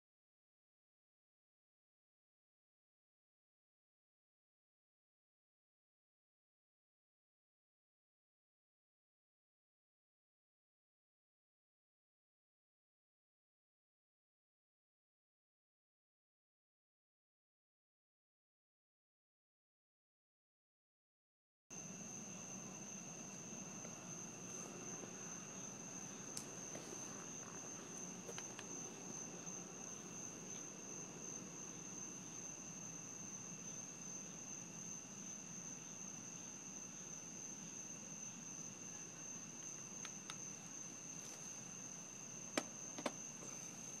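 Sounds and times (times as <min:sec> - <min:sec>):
crickets trilling: 0:21.8 - 0:44.0.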